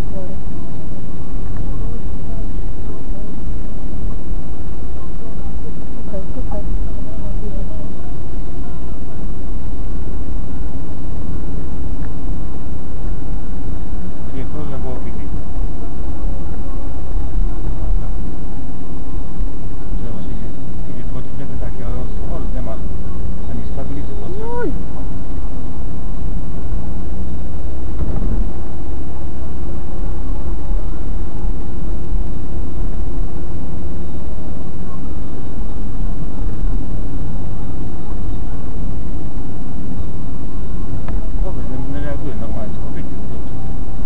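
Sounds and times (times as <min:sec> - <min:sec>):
car engine and road rumble: 0:00.0 - 0:44.0
low hum: 0:00.0 - 0:44.0.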